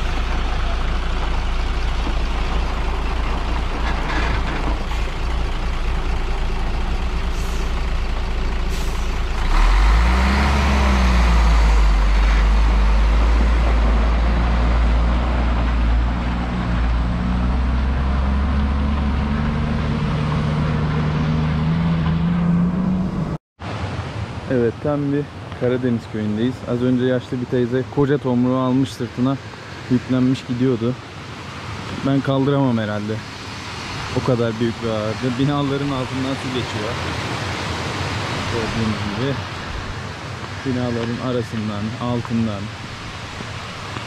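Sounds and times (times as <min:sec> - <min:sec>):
diesel truck engine revving: 0:00.0 - 0:23.4.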